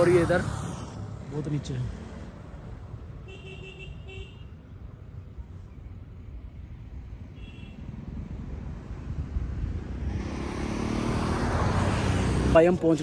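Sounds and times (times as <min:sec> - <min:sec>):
vehicle horns tooting: 0:03.2 - 0:04.5.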